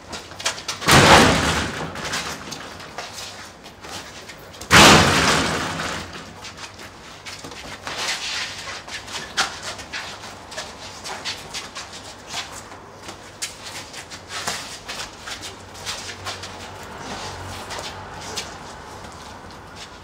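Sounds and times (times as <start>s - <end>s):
scuffling with knocks and scrapes: 0.0s - 20.0s
loud crash of impact: 0.9s - 2.3s, 4.7s - 6.4s.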